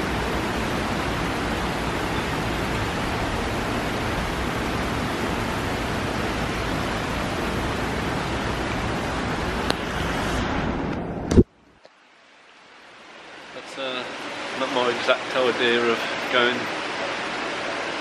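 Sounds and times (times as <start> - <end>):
heavy rain pouring: 0.0 - 11.4.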